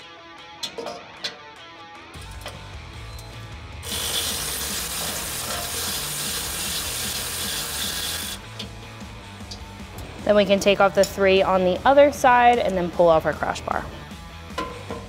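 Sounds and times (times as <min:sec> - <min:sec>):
cordless electric ratchet running: 0:03.8 - 0:08.5.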